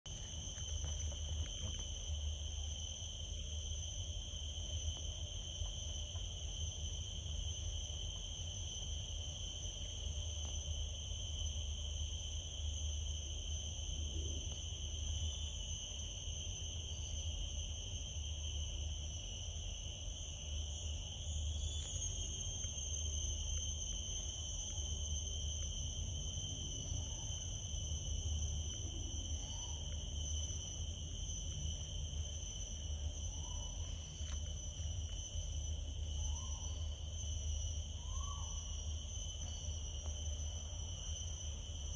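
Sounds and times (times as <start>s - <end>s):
high-pitched insect drone: 0.1s - 41.9s.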